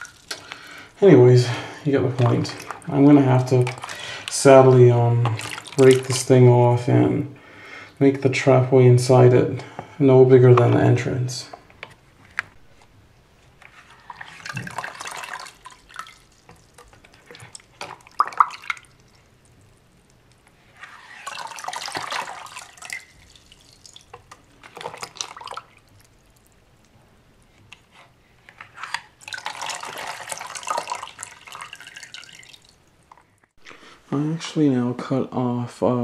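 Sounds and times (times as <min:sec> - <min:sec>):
water splashing into toilet bowl: 0:00.0 - 0:00.8, 0:01.5 - 0:06.4, 0:14.0 - 0:19.3, 0:21.0 - 0:26.5, 0:29.1 - 0:32.8
water dripping: 0:00.0 - 0:06.4, 0:14.1 - 0:20.5, 0:21.2 - 0:26.9, 0:29.2 - 0:33.5.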